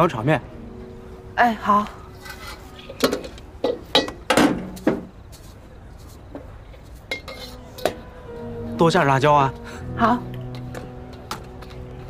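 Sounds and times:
dishes and utensils knocking and clinking: 0:02.3 - 0:05.2, 0:07.0 - 0:08.0.

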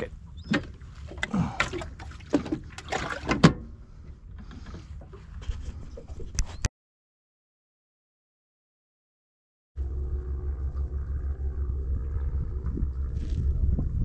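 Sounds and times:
low rumble: 0:09.8 - 0:14.0.

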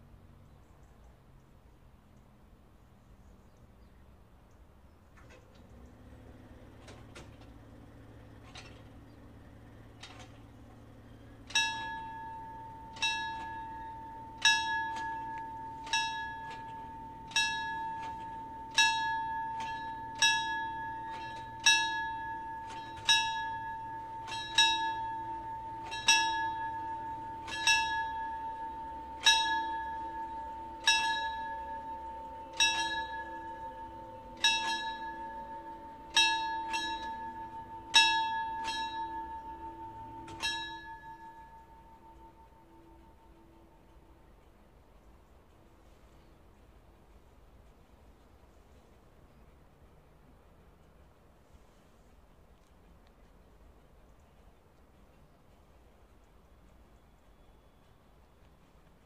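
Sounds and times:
level crossing warning bell: 0:05.2 - 0:59.0.

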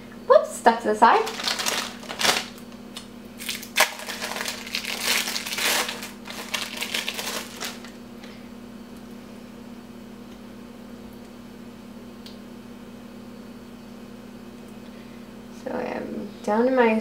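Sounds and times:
faint steady hum: 0:00.0 - 0:17.0
plastic wrapping crinkling: 0:01.1 - 0:02.8, 0:03.4 - 0:08.0.

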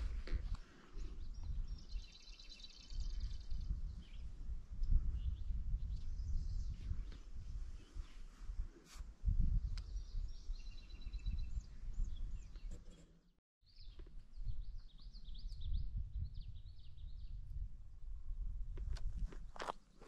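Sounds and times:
songbirds singing: 0:00.3 - 0:08.2, 0:09.6 - 0:13.1, 0:13.7 - 0:17.6.

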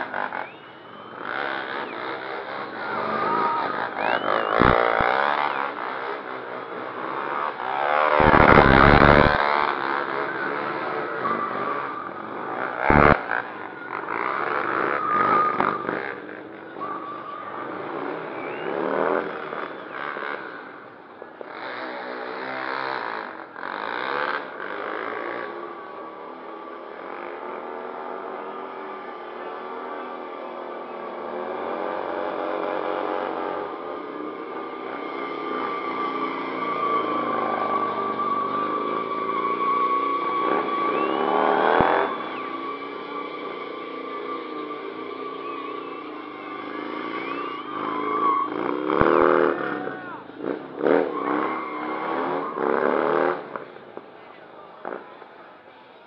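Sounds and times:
motorcycle engine revving: 0:00.0 - 0:53.7
tyre squealing: 0:34.6 - 0:50.2.

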